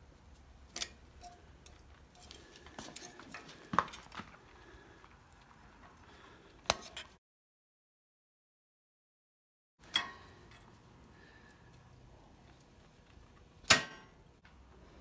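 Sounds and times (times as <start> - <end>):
scriber scraping steel: 0.6 - 4.1.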